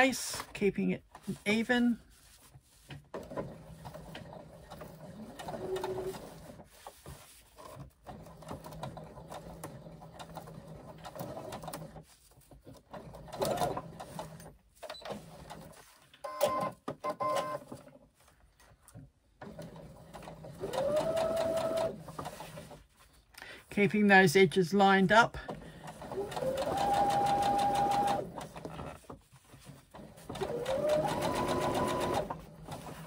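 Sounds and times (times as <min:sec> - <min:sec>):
sewing machine running: 0:03.2 - 0:06.6, 0:08.0 - 0:12.0, 0:12.9 - 0:14.5, 0:19.4 - 0:22.8, 0:25.5 - 0:28.9, 0:29.9 - 0:33.0.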